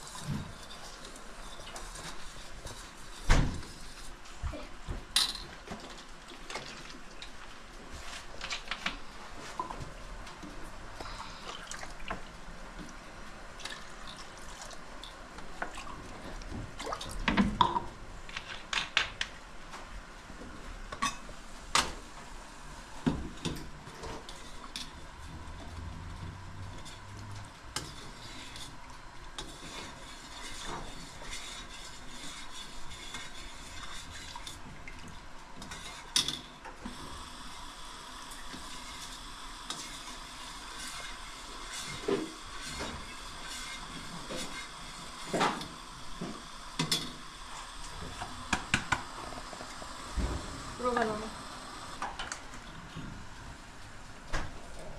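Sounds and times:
liquid stirred in pan: 0:00.0 - 0:04.4, 0:23.0 - 0:37.6, 0:38.3 - 0:50.2.

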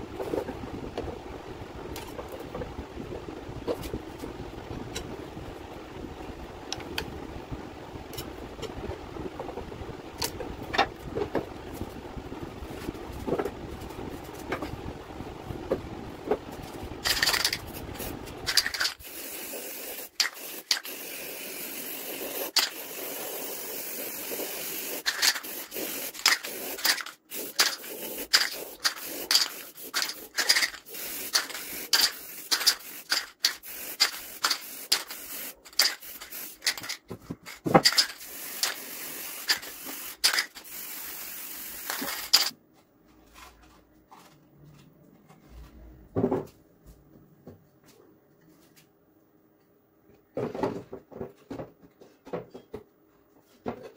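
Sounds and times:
spray paint can hissing: 0:17.0 - 0:37.0, 0:37.8 - 0:42.5.

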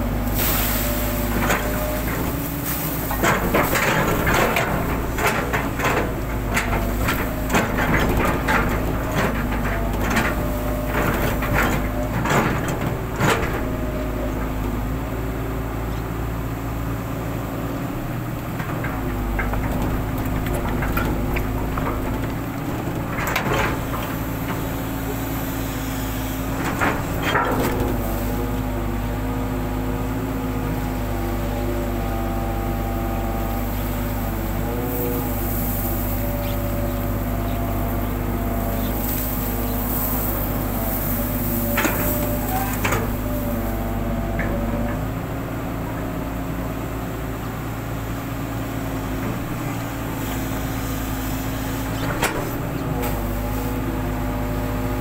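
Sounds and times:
excavator diesel engine: 0:00.0 - 0:55.0
excavator bucket clanking: 0:00.1 - 0:16.6, 0:18.1 - 0:50.9, 0:51.7 - 0:55.0.

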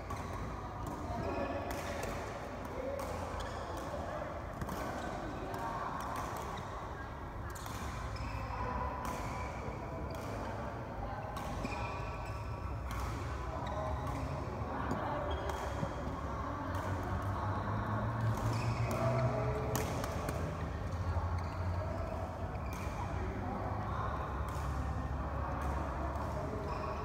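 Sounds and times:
racket hitting shuttlecock: 0:01.7 - 0:02.4, 0:12.8 - 0:14.4, 0:18.2 - 0:21.1.

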